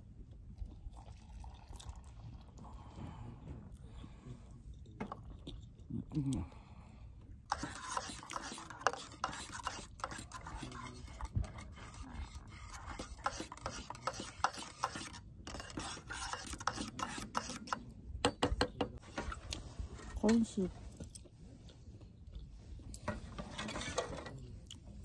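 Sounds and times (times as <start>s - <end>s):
stirrer scraping inside mug: 7.5s - 17.9s, 23.0s - 24.3s.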